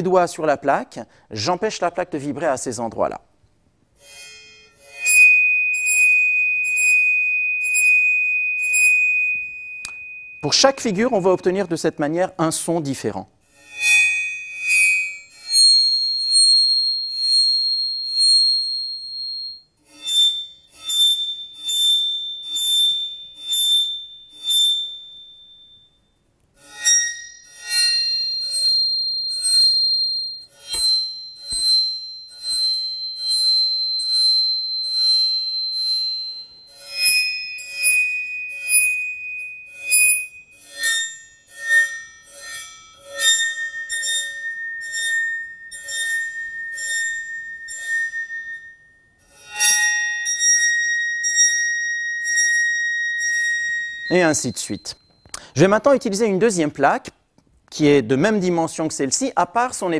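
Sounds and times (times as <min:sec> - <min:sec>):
bowed metal plate ringing: 0:05.5 - 0:11.9, 0:26.8 - 0:49.1.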